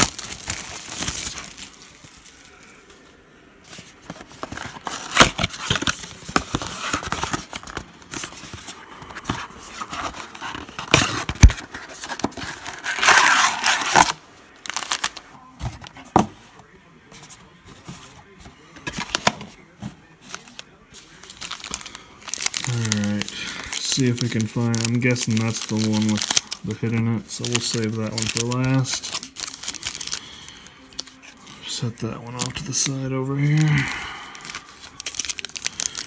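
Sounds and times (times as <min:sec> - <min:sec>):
plastic packs crinkling: 0:00.0 - 0:03.0, 0:03.7 - 0:15.9, 0:18.3 - 0:36.0
cardboard box tearing: 0:09.7 - 0:15.2.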